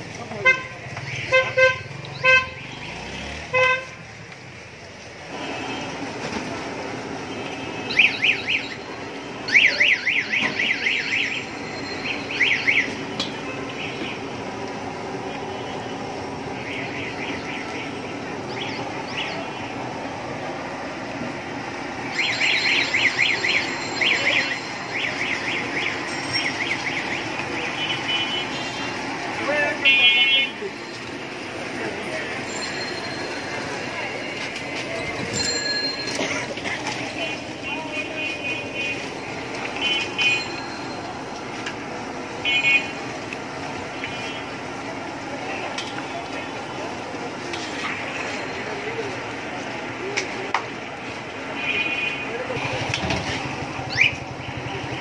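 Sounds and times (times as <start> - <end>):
street noise: 0.0 - 55.0
high chirps: 22.1 - 27.3.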